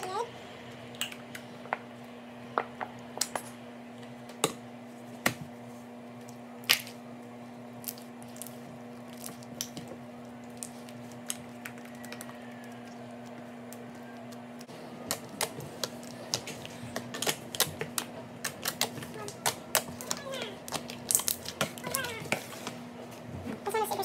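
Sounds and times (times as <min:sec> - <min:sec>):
slime squishing: 0:07.8 - 0:22.8.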